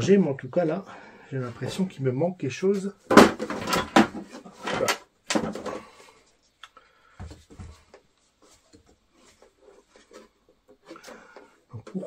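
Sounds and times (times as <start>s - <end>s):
knocks and rattles of model parts: 3.0s - 6.0s.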